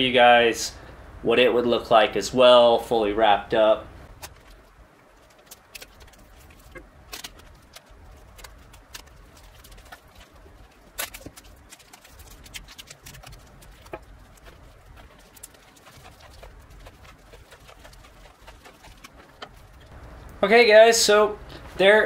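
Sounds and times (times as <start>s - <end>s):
plastic film crinkling: 4.2s - 20.0s.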